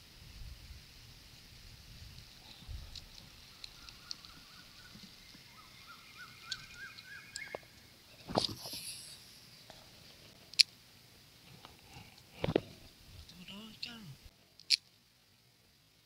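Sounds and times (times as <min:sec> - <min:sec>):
faint ticks: 0:02.1 - 0:05.6, 0:06.2 - 0:10.8
small repeated chirps: 0:02.5 - 0:09.7
hand brushing camera: 0:08.2 - 0:09.4.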